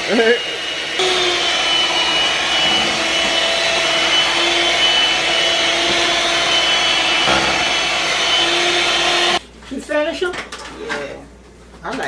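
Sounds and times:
electric hand mixer running: 0.0 - 9.4.

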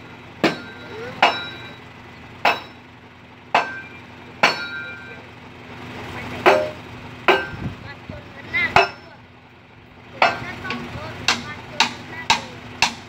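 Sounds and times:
diesel truck engine idling: 0.0 - 13.0
metal-on-metal clanks: 0.4 - 1.8, 2.4 - 2.8, 3.6 - 5.3, 6.4 - 7.8, 8.7 - 9.2, 10.2 - 13.0.

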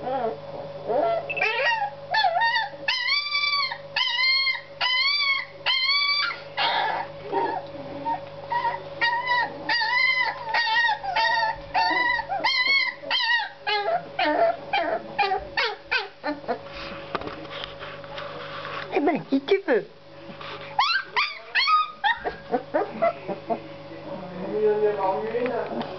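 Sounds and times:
puppies whining and yelping: 0.0 - 16.6, 20.8 - 23.6.

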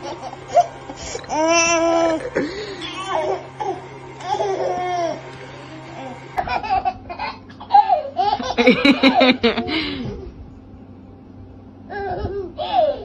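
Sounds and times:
baby laughing: 6.4 - 9.8, 11.9 - 13.0.

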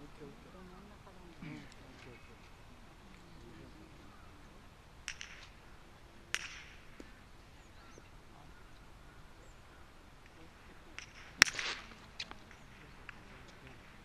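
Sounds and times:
golf club striking ball: 5.0 - 7.2, 10.2 - 13.2.

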